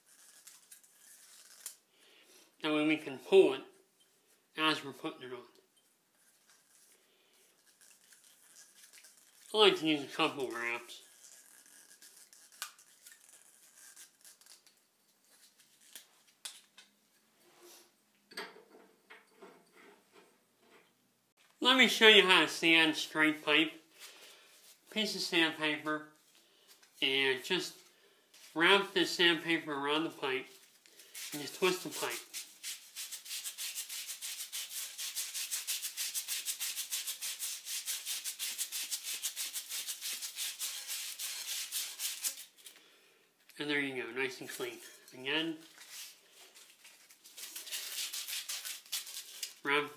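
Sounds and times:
sandpaper rasping on copper pipe: 0.0 - 1.7, 6.2 - 9.6, 10.4 - 14.7, 31.1 - 42.5, 47.4 - 49.6
thread tape being wound: 0.0 - 1.8, 6.2 - 9.6, 11.0 - 16.6, 31.2 - 42.8, 45.7 - 49.6.

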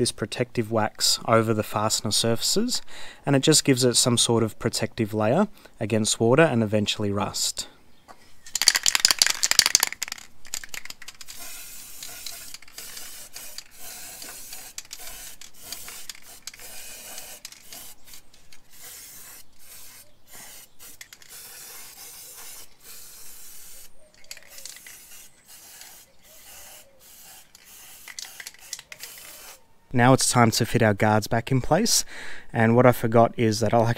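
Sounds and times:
aerosol can spraying: 8.6 - 29.6.

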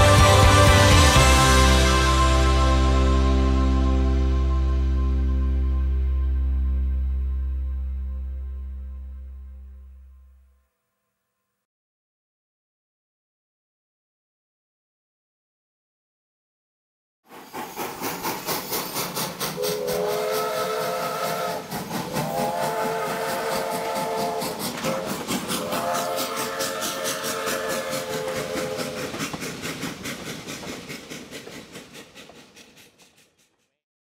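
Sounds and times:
steam locomotive chuffing: 0.0 - 4.8, 17.3 - 33.8
steam whistle blasts: 19.6 - 29.2.

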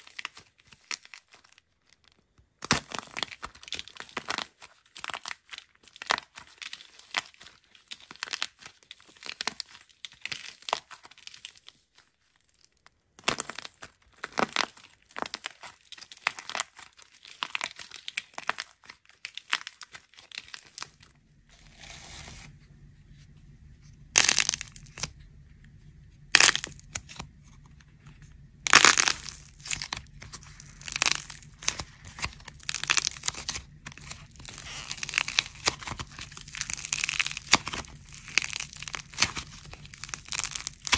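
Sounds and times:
dried clay cracking and crumbling: 0.0 - 40.9
low steady hum: 20.3 - 40.9.

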